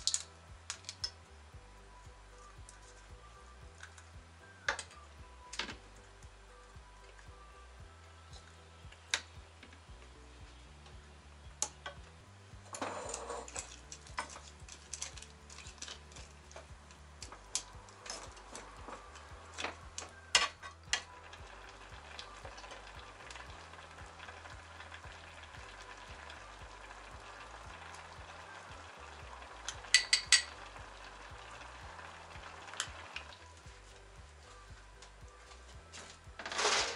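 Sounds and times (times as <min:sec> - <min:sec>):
syrup simmering and bubbling: 0:12.6 - 0:35.9.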